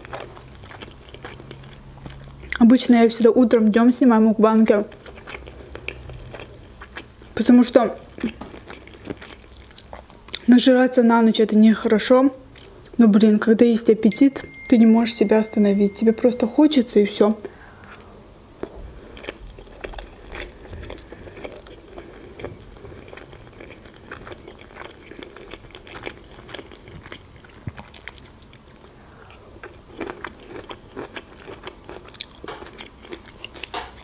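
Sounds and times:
person chewing: 0.0 - 2.6, 4.7 - 10.5, 18.6 - 34.0.

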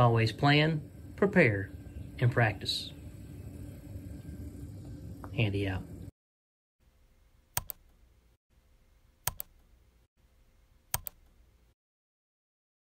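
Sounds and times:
faint hum: 0.0 - 6.1
double clicks: 7.6 - 7.8, 9.3 - 9.5, 10.9 - 11.2.

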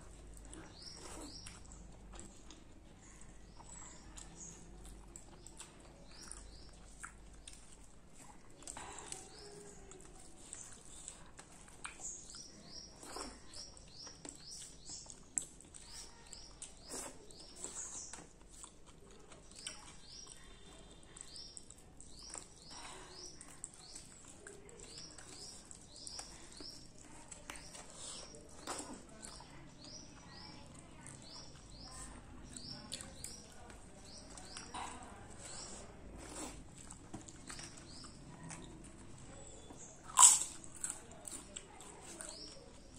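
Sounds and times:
fingers squelching food: 0.0 - 42.9
small bird chirping: 0.5 - 1.8, 9.0 - 36.5.

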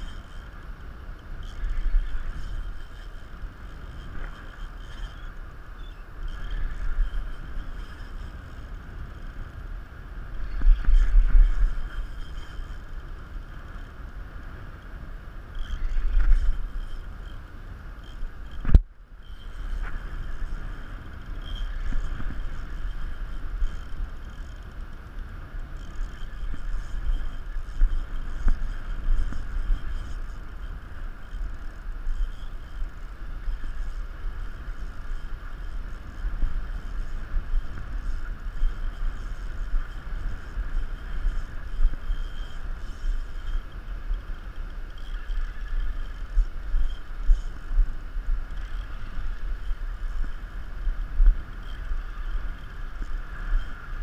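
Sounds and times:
wind buffeting the microphone: 0.0 - 54.0.

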